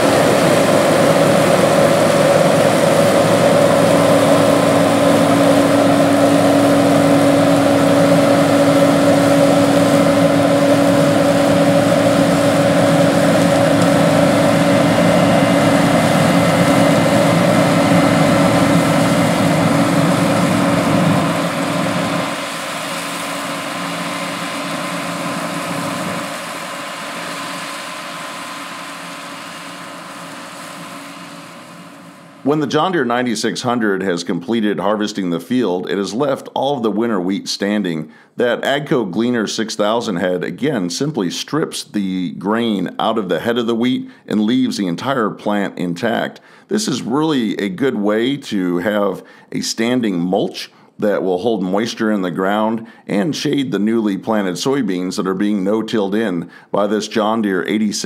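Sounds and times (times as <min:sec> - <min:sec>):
combine harvester diesel engine running: 0:00.0 - 0:33.6
steady hum: 0:00.0 - 0:34.2.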